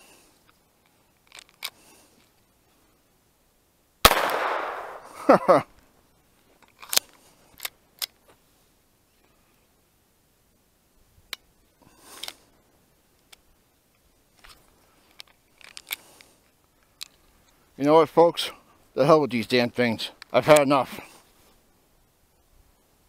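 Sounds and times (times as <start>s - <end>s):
pistol metallic clicks: 4.1s - 5.1s.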